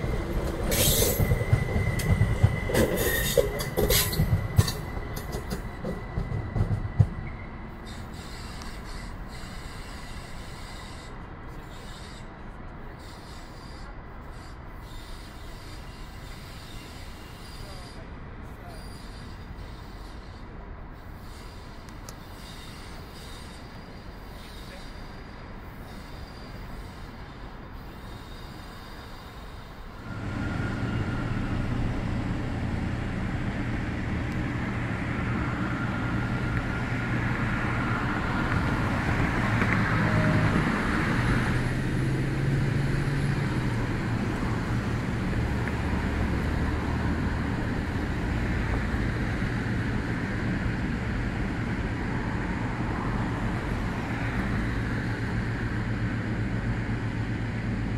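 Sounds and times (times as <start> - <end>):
diesel railcar engine drone: 0.0 - 57.9
train rumbling away: 0.0 - 57.9
faint high squeals: 0.6 - 32.8.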